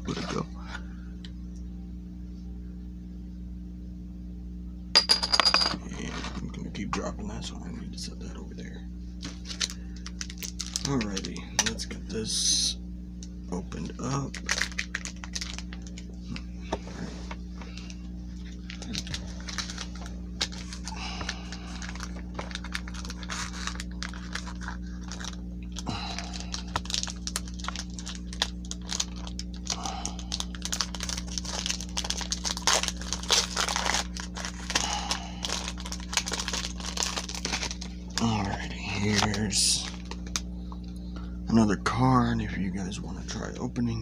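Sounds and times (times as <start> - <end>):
steady low hum: 0.0 - 44.0
foil wrapper crinkling and tearing: 9.2 - 11.9, 14.0 - 16.4, 17.7 - 40.5.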